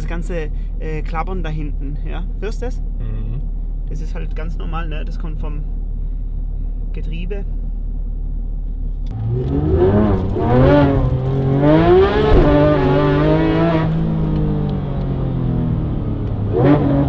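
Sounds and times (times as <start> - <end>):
car engine revving: 8.4 - 17.0.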